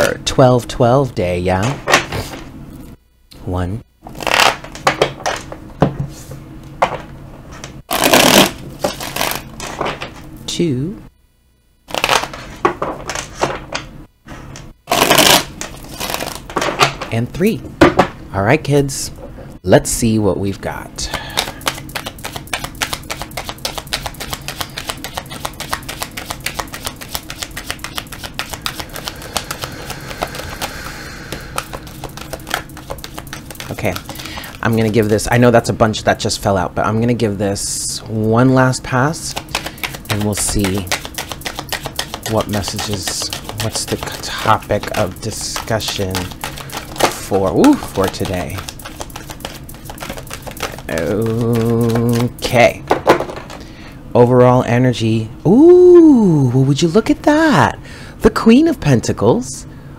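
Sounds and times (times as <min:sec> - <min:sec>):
cards tapping and flicking: 0:21.2 - 0:35.4, 0:39.2 - 0:53.6
cards riffling together: 0:21.3 - 0:35.3, 0:39.3 - 0:52.6.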